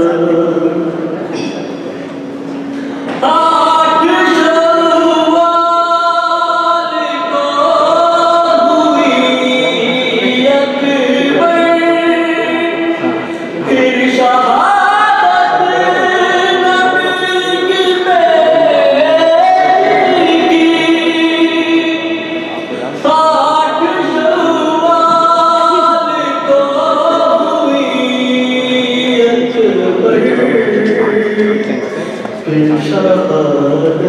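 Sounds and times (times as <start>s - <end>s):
man chanting into a microphone: 3.2s - 34.0s.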